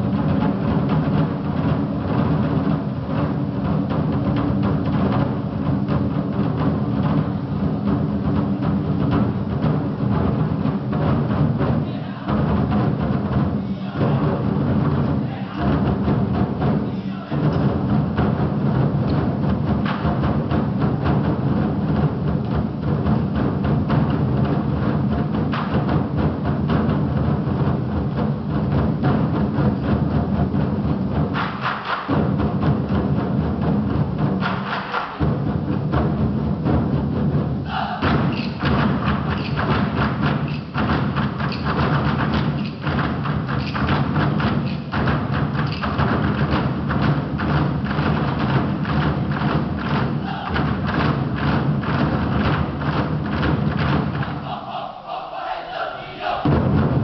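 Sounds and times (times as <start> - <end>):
large drums beaten in unison: 0.0 - 57.0.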